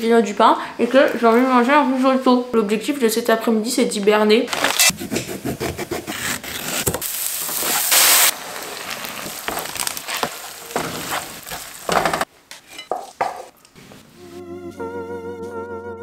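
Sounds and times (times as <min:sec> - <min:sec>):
wooden spoon scraping pan: 0:04.5 - 0:14.0
shallots sizzling in frying pan: 0:07.0 - 0:13.3.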